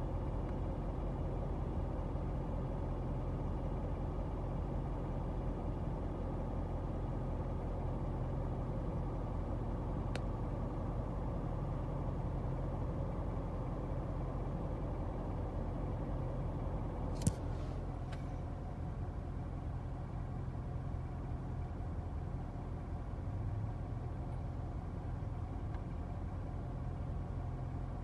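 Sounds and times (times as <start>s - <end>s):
car idling hum: 0.0s - 28.0s
faint tick: 10.1s - 10.3s
sharp click: 17.1s - 17.5s.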